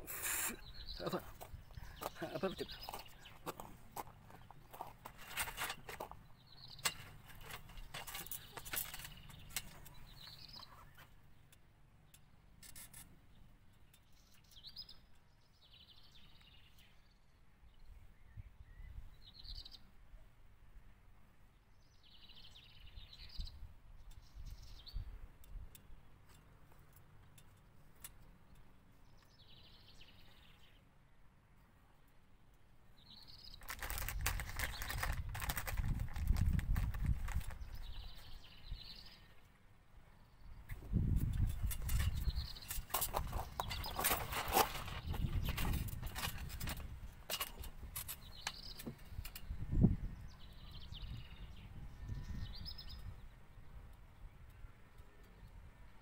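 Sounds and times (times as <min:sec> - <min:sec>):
small birds chirping: 0:00.0 - 0:20.0, 0:21.3 - 0:56.0
plastic packet crinkling: 0:33.6 - 0:37.6.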